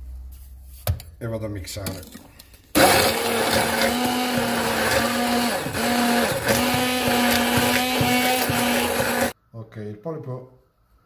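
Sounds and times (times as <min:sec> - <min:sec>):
immersion blender running: 0:02.8 - 0:09.4.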